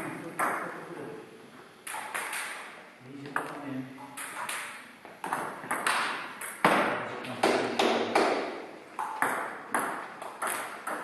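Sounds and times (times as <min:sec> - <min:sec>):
table tennis balls clicking: 0:01.8 - 0:06.9, 0:08.2 - 0:11.0.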